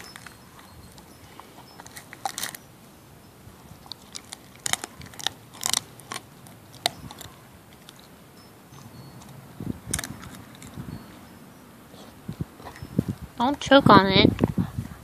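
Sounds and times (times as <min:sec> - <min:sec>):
dog crunching a chew: 0:00.0 - 0:02.7, 0:03.8 - 0:10.9, 0:12.0 - 0:12.9.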